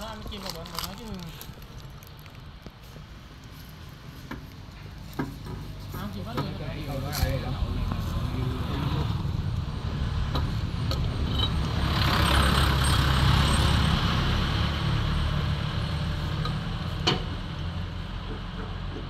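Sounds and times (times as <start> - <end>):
motor vehicle passing: 5.8 - 19.0.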